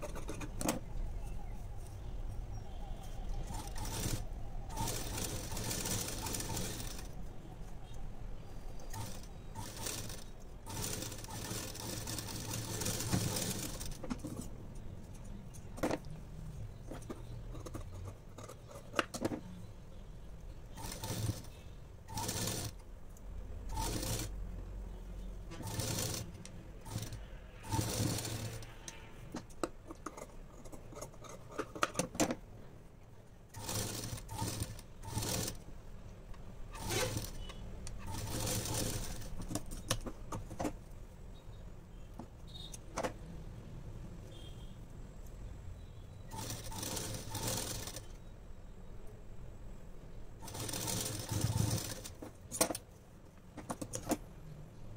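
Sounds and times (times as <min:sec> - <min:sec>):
sewing machine stitching fabric: 0:03.4 - 0:07.2, 0:08.8 - 0:14.5, 0:20.7 - 0:22.8, 0:23.7 - 0:24.4, 0:25.5 - 0:29.1, 0:33.5 - 0:35.6, 0:36.7 - 0:40.8, 0:46.3 - 0:48.2, 0:50.4 - 0:52.8.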